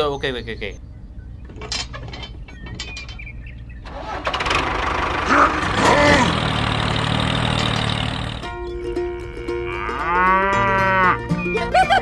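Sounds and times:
small tractor motor running: 0:03.9 - 0:08.6.

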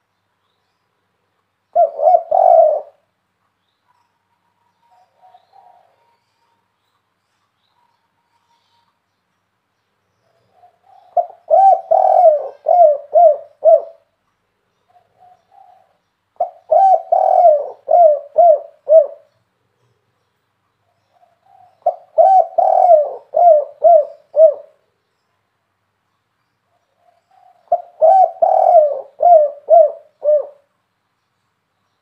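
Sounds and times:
dove cooing: 0:01.7 - 0:03.1, 0:04.9 - 0:06.2, 0:10.4 - 0:14.1, 0:14.9 - 0:19.4, 0:21.2 - 0:24.8, 0:27.0 - 0:30.7.

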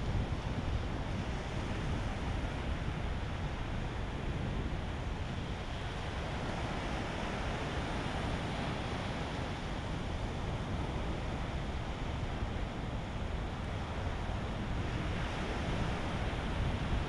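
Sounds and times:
wind noise on microphone: 0:00.0 - 0:17.0.

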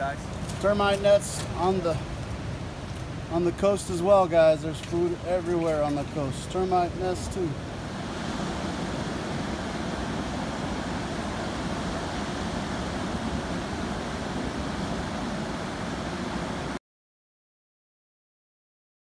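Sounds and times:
ocean surf breaking on beach: 0:00.0 - 0:16.8
wind on microphone: 0:04.6 - 0:16.8.

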